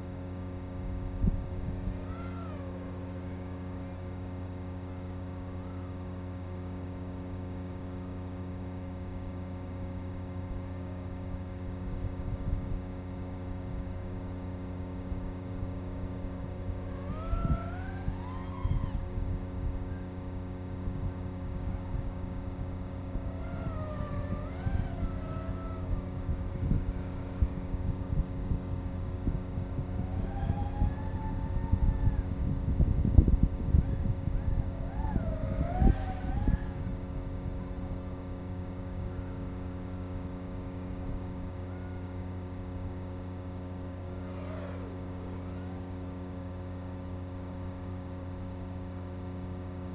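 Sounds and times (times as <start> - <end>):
drone motors whining: 0.1 - 12.1, 12.8 - 49.6
wind buffeting: 0.6 - 4.5, 15.4 - 41.7.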